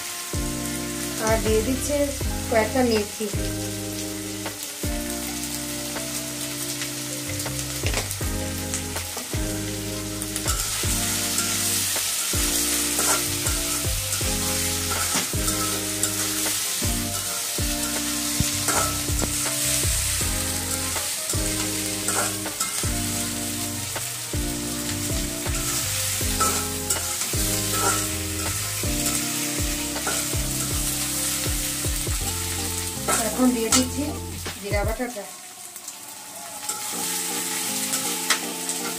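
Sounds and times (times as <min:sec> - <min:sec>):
potato wedges sizzling in oil: 0:00.0 - 0:38.9
metal spatula scraping pan: 0:10.4 - 0:22.9, 0:25.6 - 0:30.7.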